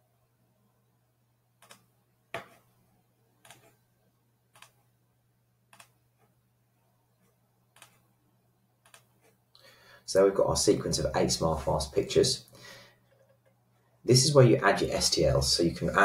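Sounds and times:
faint low hum: 0.0s - 16.0s
computer mouse clicking: 1.6s - 2.6s, 3.4s - 3.8s, 4.5s - 4.8s, 5.7s - 6.0s, 7.8s - 8.0s, 8.8s - 9.4s.

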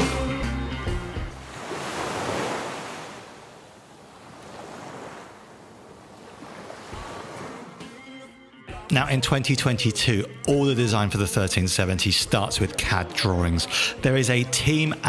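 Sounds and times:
rock music: 0.0s - 1.4s, 7.8s - 15.0s.

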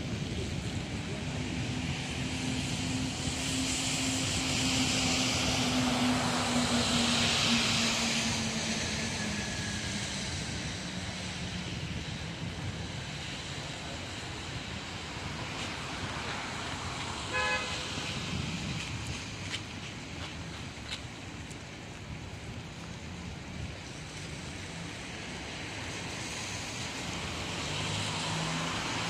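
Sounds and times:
background street noise: 0.0s - 29.0s
vehicle passing by: 25.6s - 29.0s.

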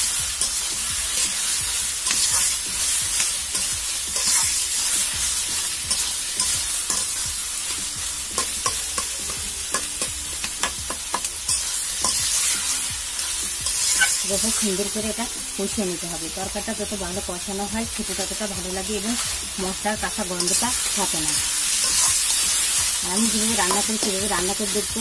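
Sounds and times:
vegetables sizzling in hot oil: 0.0s - 25.0s
spatula scraping and clicking on pan: 2.0s - 2.6s, 3.2s - 4.6s, 5.9s - 7.2s, 8.4s - 12.7s, 13.6s - 14.3s, 21.8s - 24.2s.

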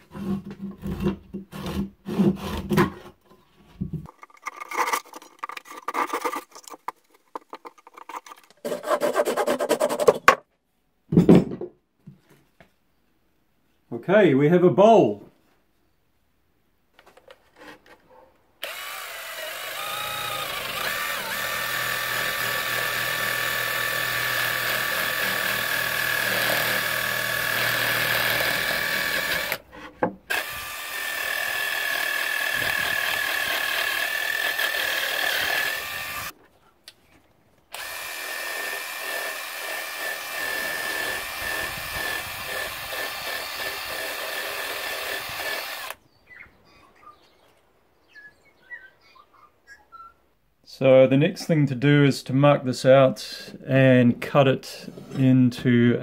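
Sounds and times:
drill sanding wood whine: 18.6s - 29.6s, 30.3s - 36.4s, 37.7s - 46.0s.

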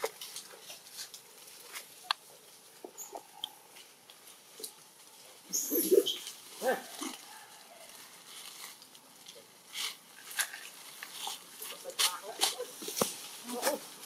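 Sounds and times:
clicks and rustles in grass: 0.0s - 14.0s
macaques calling: 2.8s - 3.7s, 5.4s - 8.0s, 11.1s - 14.0s.

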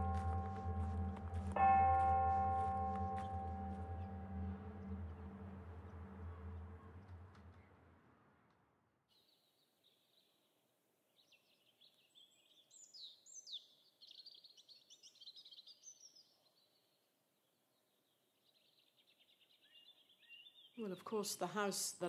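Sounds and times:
birds chirping and trilling: 11.2s - 17.0s, 17.9s - 20.8s.

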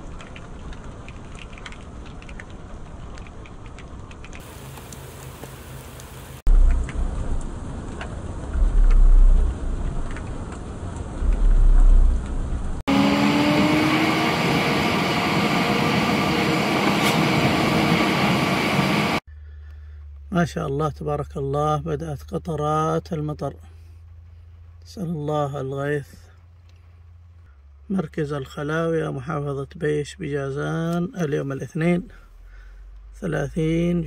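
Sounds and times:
light rain falling: 0.0s - 12.8s
car driving heard from inside: 6.4s - 14.4s.

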